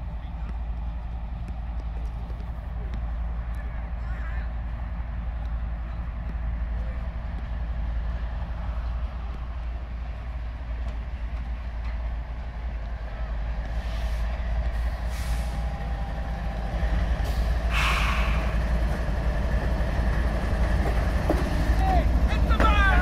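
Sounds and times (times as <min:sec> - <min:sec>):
diesel locomotive engines rumbling: 0:00.0 - 0:23.0
short air hisses: 0:14.8 - 0:15.6, 0:17.3 - 0:18.6.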